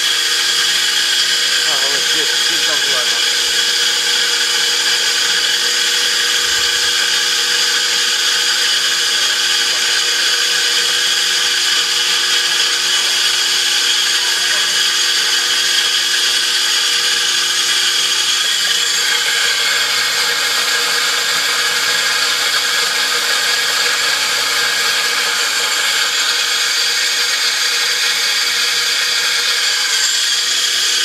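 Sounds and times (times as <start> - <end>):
stone grain mill whirring: 0.0 - 31.0.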